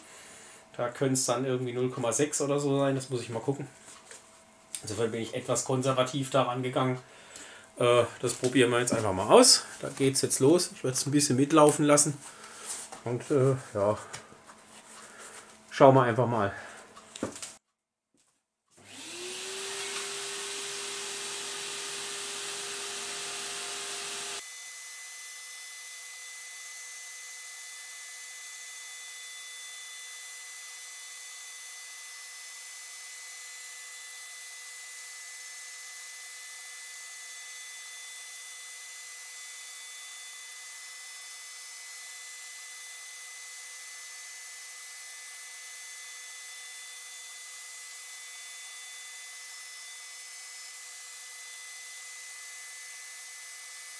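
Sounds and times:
shop vacuum running: 0:18.8 - 0:25.2
router motor high whine: 0:18.8 - 0:53.9.

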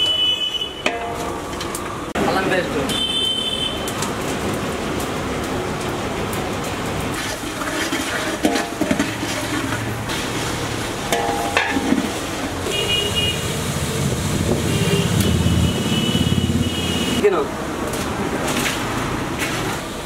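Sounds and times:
vehicle horns tooting: 0:00.0 - 0:01.0, 0:02.8 - 0:04.0, 0:12.6 - 0:13.6, 0:14.6 - 0:17.3
traffic engine rumble: 0:00.0 - 0:20.0
ladle clinking on metal pots: 0:00.8 - 0:01.8, 0:07.2 - 0:09.9, 0:11.0 - 0:12.7.

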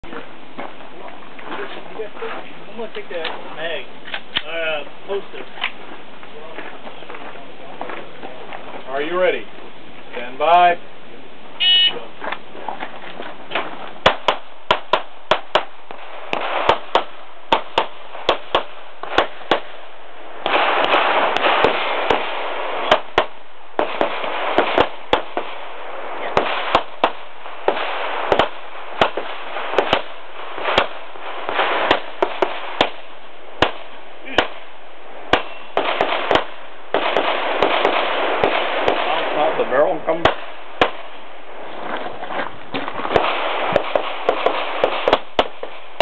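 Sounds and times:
pistol gunshots: 0:13.5 - 0:19.8, 0:20.4 - 0:34.7, 0:35.3 - 0:39.6, 0:40.2 - 0:41.2, 0:42.9 - 0:46.0.

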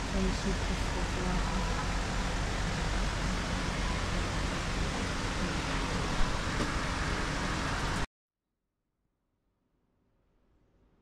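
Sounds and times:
traffic rumble and hiss: 0:00.0 - 0:08.1.

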